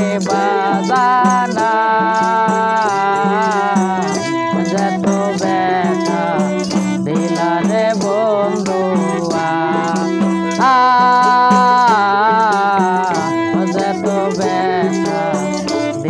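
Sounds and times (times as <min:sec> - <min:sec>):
frame drum with jingles: 0:00.0 - 0:16.0
harmonium: 0:00.0 - 0:16.0.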